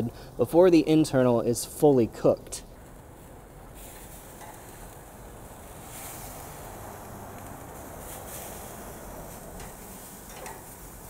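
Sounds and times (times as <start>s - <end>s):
meat sizzling on grill: 2.8s - 11.0s
metal tongs clicking: 9.6s - 10.7s.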